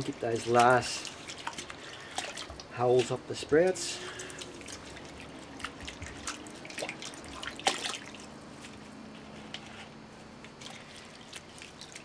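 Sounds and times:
water splashing in a steel bowl: 0.0s - 8.4s, 10.6s - 12.0s.

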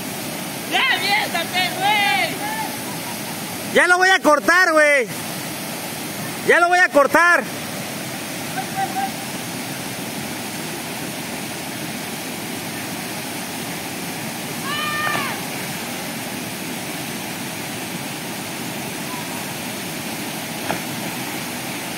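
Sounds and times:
waterfall pouring into pool: 0.0s - 21.9s
short high cry: 14.6s - 15.5s.

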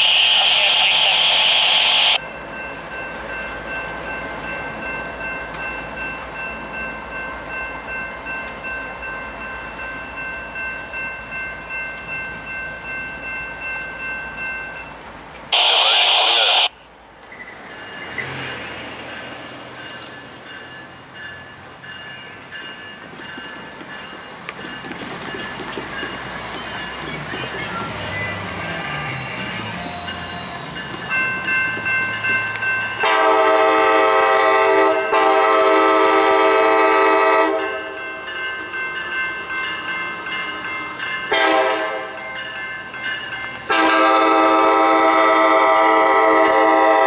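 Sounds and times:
freight train rumbling past: 0.0s - 47.0s
railroad crossing bell ringing: 2.1s - 47.0s
train horn blast: 33.0s - 37.7s, 41.3s - 42.1s, 43.7s - 47.0s.

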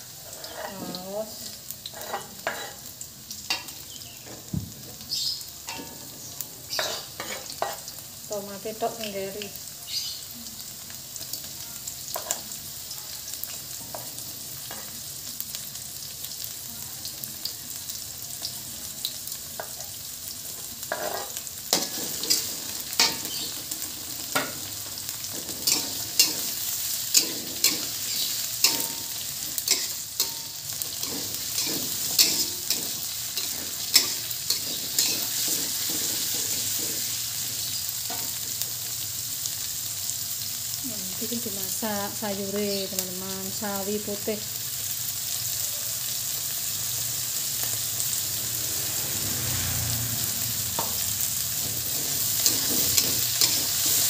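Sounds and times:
food sizzling in hot oil: 0.0s - 54.0s
metal spatula scraping a pan: 0.1s - 1.1s, 1.8s - 2.9s, 5.7s - 7.9s, 20.9s - 37.5s, 51.5s - 54.0s.

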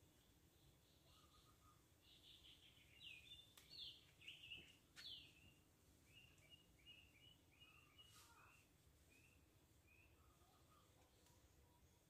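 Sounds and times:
faint birdsong chirps and whistles: 0.0s - 12.0s
faint sharp clicks: 3.5s - 3.8s.

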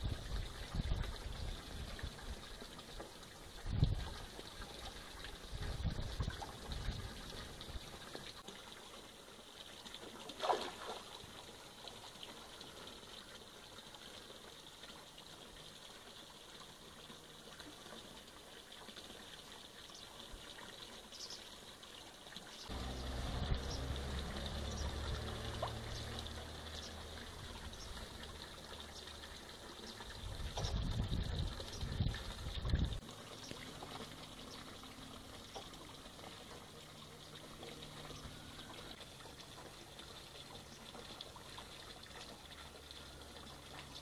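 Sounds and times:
faint water sounds: 0.0s - 44.0s
short splash: 10.3s - 11.3s
low steady hum: 22.7s - 44.0s.

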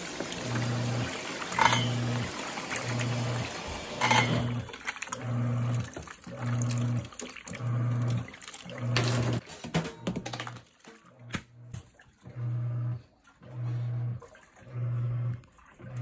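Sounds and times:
water pouring from hose: 0.0s - 9.0s
washing machine motor humming: 0.0s - 9.4s, 10.4s - 16.0s.

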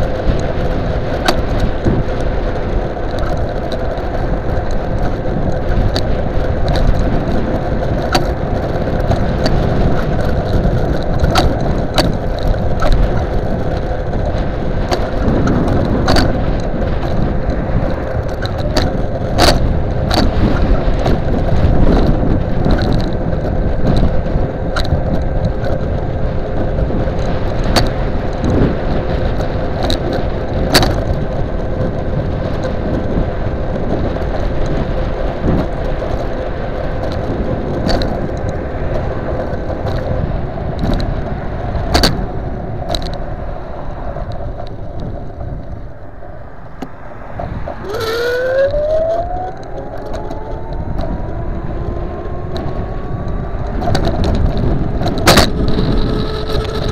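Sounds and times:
rattles and knocks over bumps: 0.0s - 43.3s, 49.2s - 56.9s
road rumble: 0.0s - 56.9s
wind rush: 0.0s - 56.9s
electric motor whine: 47.8s - 56.9s.

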